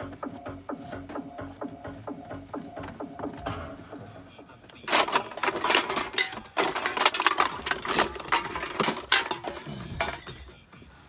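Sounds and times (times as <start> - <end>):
objects clattering while rummaging: 4.6 - 10.8.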